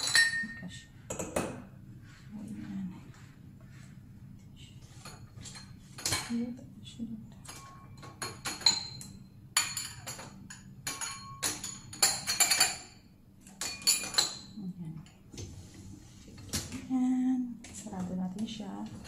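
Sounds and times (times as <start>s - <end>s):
wine glasses clinking: 0.0s - 0.6s, 7.5s - 12.8s.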